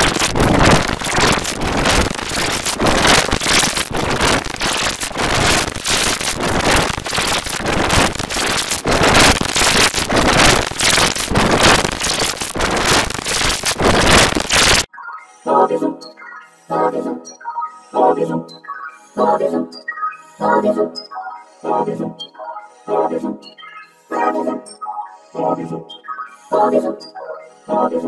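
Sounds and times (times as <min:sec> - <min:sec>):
harsh distorted crackling noise: 0:00.0 - 0:14.9.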